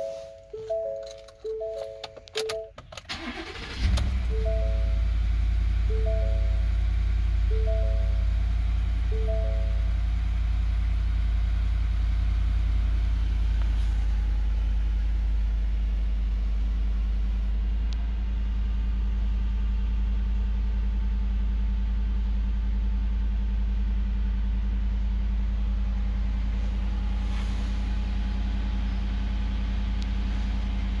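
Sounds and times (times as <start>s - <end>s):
pickup engine idling: 3.1s - 31.0s.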